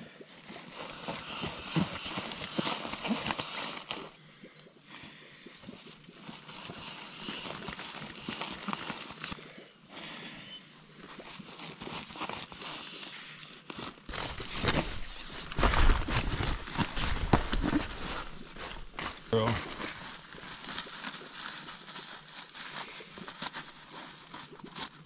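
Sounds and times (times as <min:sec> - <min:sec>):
nylon rustling: 0:13.7 - 0:25.0.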